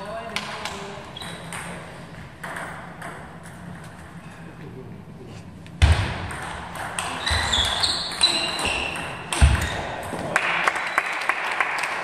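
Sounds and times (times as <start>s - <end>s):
shoes squeaking on floor: 1.1s - 1.8s, 7.0s - 10.0s.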